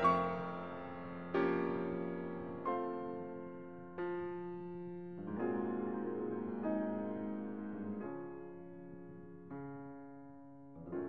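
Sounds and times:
slow piano chords: 0.0 - 11.0.

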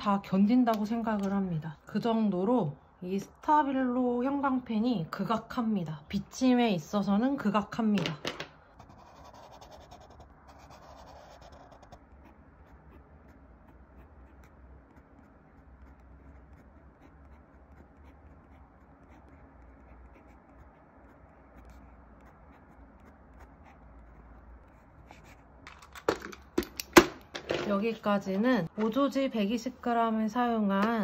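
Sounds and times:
pen nib scratching paper: 8.7 - 25.5
marker drawing on paper: 8.8 - 25.4.

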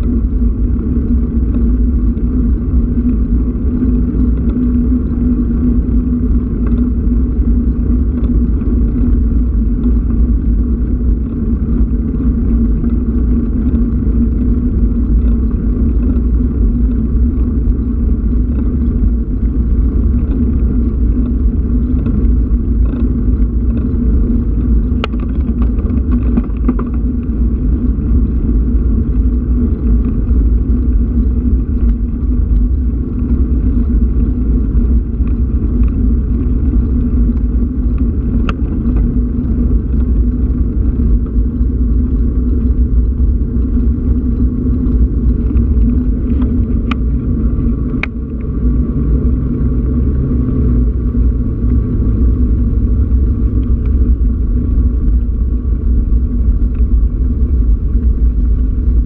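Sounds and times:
tyre noise on tarmac: 0.0 - 59.0
wind buffeting microphone: 0.0 - 59.0.

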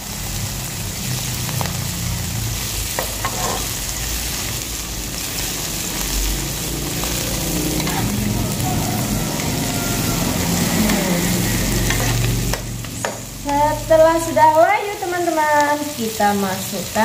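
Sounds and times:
food sizzling in oil: 0.0 - 17.0
metal spatula scraping pan: 3.0 - 3.8, 7.0 - 8.3, 9.4 - 12.6.

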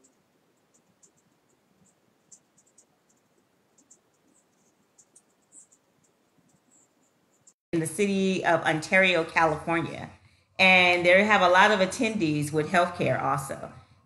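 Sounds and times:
faint high-pitched ticks: 0.0 - 7.6.

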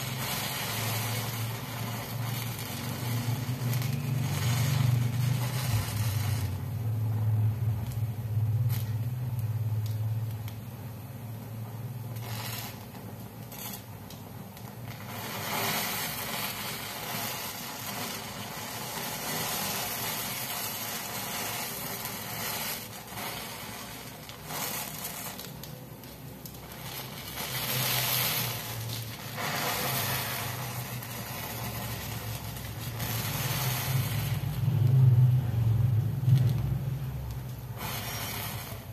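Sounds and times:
matchsticks burning crackling: 0.0 - 38.9.

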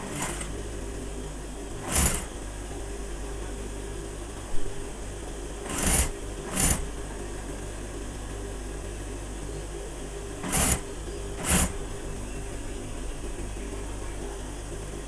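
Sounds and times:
sewing machine motor humming: 0.0 - 8.6, 9.8 - 12.6.

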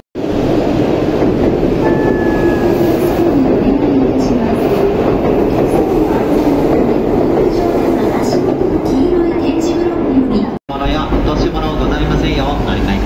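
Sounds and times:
train wheels rumbling past: 10.7 - 13.0.

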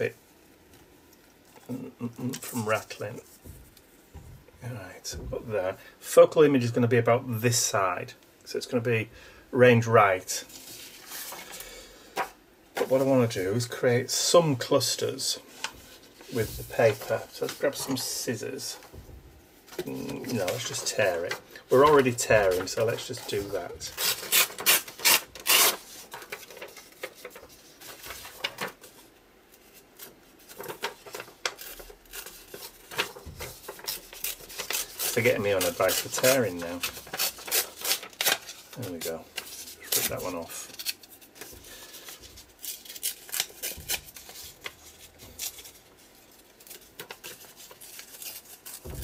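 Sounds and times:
paper ripping: 19.7 - 28.9, 29.6 - 49.0
paper tearing and handling: 19.7 - 28.9, 29.6 - 49.0.

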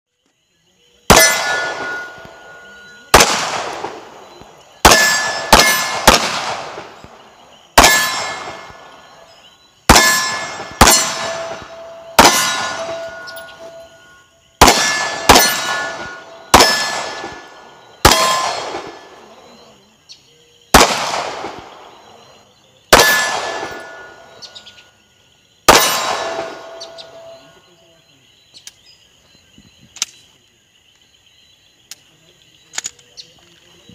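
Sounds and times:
handgun shots: 1.1 - 2.4, 3.1 - 4.1, 4.8 - 7.1, 7.8 - 8.8, 9.9 - 13.8, 14.6 - 19.0, 20.8 - 21.6, 22.9 - 24.1, 25.7 - 27.1
steel target ringing clang: 1.1 - 3.3, 4.9 - 6.1, 7.8 - 8.8, 9.9 - 17.4, 18.1 - 19.0, 23.0 - 24.5, 25.7 - 27.4.

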